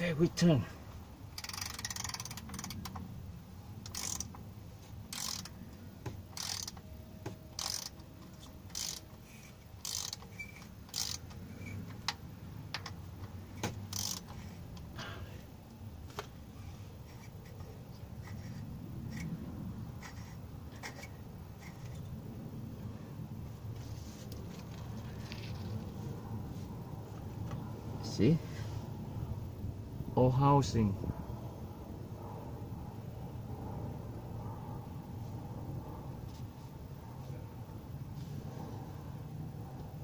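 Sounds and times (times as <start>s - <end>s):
socket ratchet clicking: 1.4s - 3.1s, 3.8s - 4.4s, 5.1s - 5.6s, 6.3s - 6.9s, 7.5s - 9.1s, 9.8s - 13.0s, 13.6s - 14.8s.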